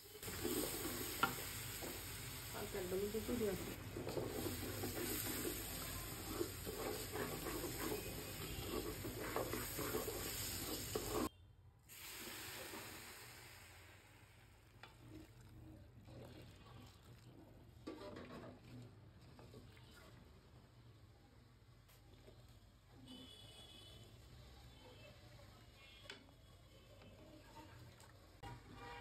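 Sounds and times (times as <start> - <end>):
rice sizzling in a pot: 0.0 - 11.3, 11.9 - 29.0
wooden spatula scraping a pot: 0.0 - 11.3, 14.8 - 20.5.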